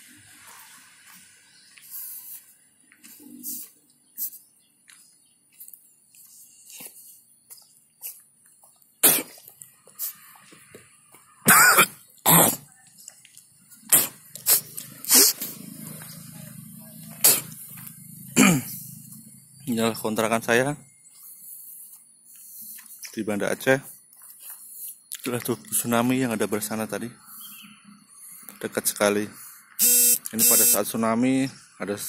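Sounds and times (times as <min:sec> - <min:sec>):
person coughing: 0:11.5 - 0:12.6, 0:18.4 - 0:18.8.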